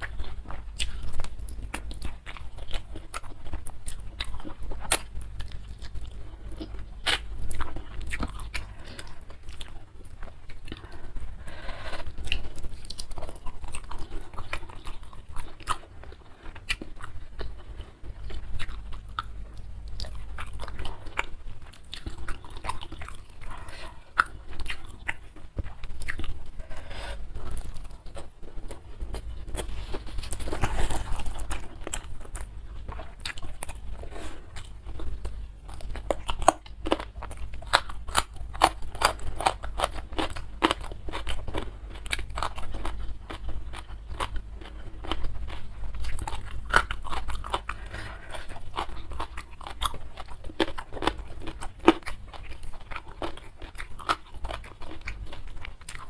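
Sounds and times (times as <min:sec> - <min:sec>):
chewing and crunching: 0:00.0 - 0:56.0.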